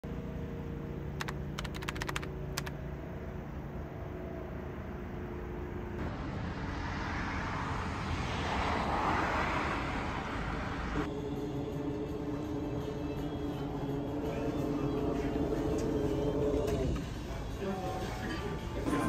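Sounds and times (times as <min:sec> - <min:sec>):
sharp clicks: 0:01.2 - 0:02.8
vehicle passing: 0:03.0 - 0:17.6
steady low hum: 0:10.1 - 0:18.0.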